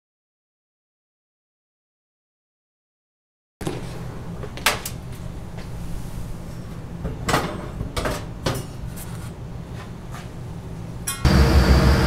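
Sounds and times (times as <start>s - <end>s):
steady low hum: 3.6s - 12.0s.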